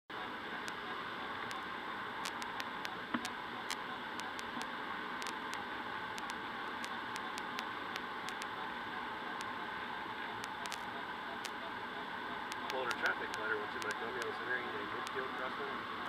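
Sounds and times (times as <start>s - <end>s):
light ticks and clicks: 2.2s - 8.6s, 10.3s - 11.8s, 12.4s - 15.6s.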